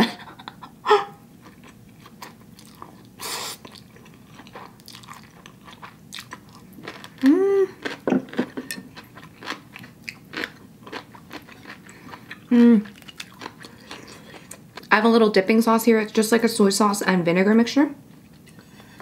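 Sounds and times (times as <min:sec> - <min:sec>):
noodles slurped and chewed: 0:01.4 - 0:14.9
person humming mm: 0:07.2 - 0:07.8, 0:12.5 - 0:12.9.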